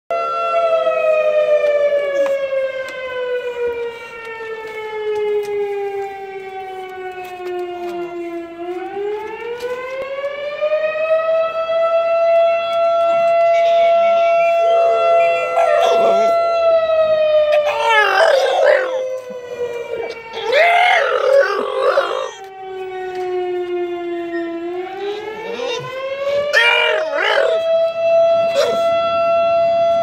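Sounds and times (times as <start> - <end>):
warning siren wailing: 0.1 - 30.0
dogs howling faintly: 14.4 - 23.2, 24.2 - 27.8, 28.5 - 29.0.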